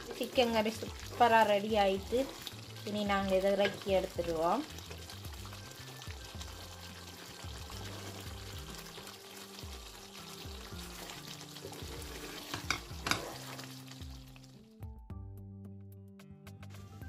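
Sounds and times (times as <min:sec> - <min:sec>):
curry sizzling in a frying pan: 0:00.0 - 0:14.8
quiet background music: 0:00.0 - 0:17.0
wooden spatula stirring: 0:10.6 - 0:13.7.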